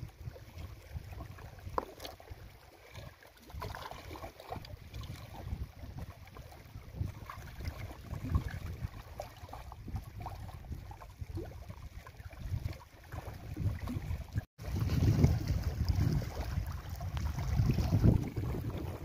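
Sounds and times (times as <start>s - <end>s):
small waves lapping at rocks: 0.0s - 19.0s
wind buffeting microphone: 4.5s - 19.0s.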